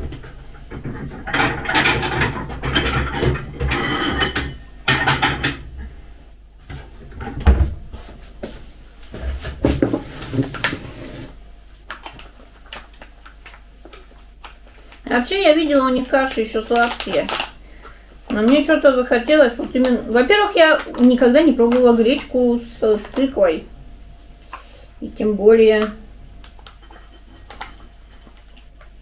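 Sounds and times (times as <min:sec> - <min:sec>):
dishes clattering: 0:00.0 - 0:05.7.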